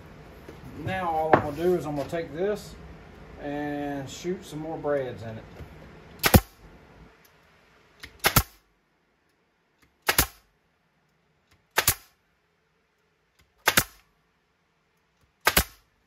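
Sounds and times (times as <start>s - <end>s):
nail gun firing: 6.2s - 6.6s, 8.0s - 8.6s, 10.0s - 10.5s, 11.6s - 12.2s, 13.4s - 14.1s, 15.4s - 15.9s.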